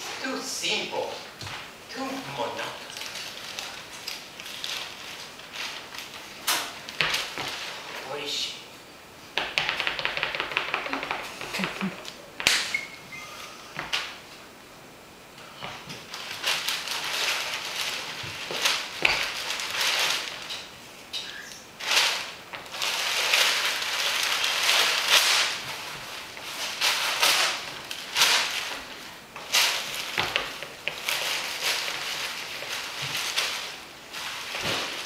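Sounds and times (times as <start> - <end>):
crinkly sheet crumpling: 1.9 - 8.3, 16.0 - 20.9, 21.8 - 35.0.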